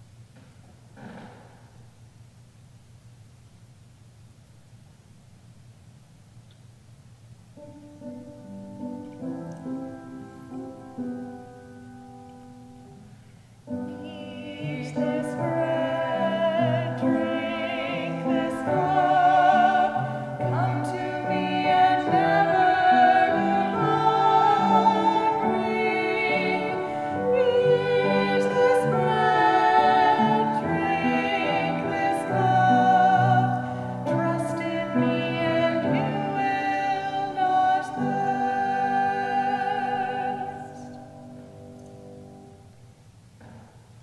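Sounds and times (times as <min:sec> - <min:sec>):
piano accompaniment: 0:07.6 - 0:43.7
classical singer with vibrato: 0:13.7 - 0:41.6.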